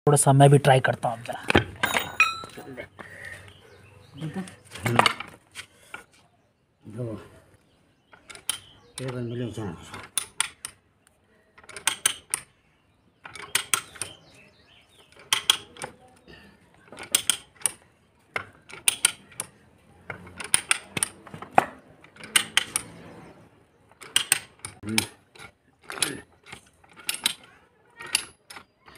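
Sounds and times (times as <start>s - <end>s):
metallic ratchet clicks: 24.0s - 28.7s.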